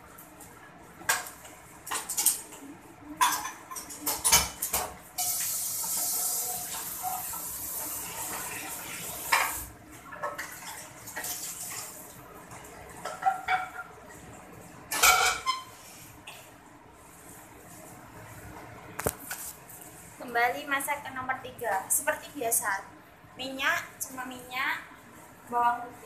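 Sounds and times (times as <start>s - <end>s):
kitchenware clinking: 1.9s - 5.4s, 13.0s - 14.0s, 14.9s - 15.7s
tap water running into sink: 5.2s - 12.0s.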